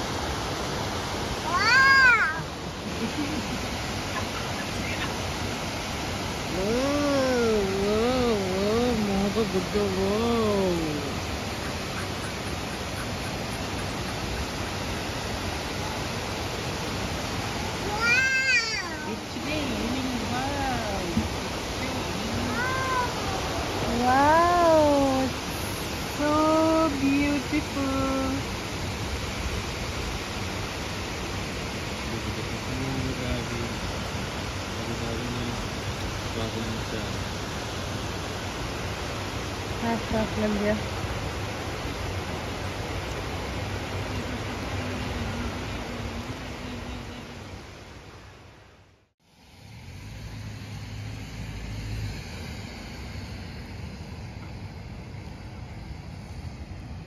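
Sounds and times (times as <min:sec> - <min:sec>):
steady rain falling: 0:00.0 - 0:57.0
car driving on wet road: 0:34.8 - 0:37.1.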